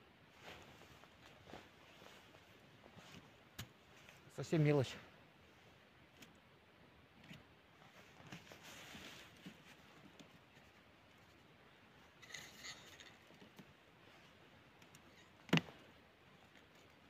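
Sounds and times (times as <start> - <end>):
hands rustling fishing tackle: 7.3 - 17.0.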